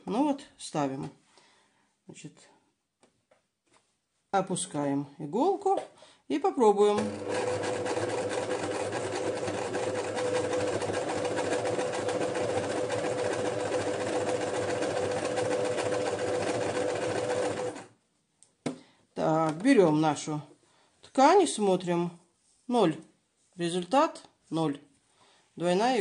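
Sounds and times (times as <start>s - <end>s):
electric sewing machine running: 7.0s - 17.9s.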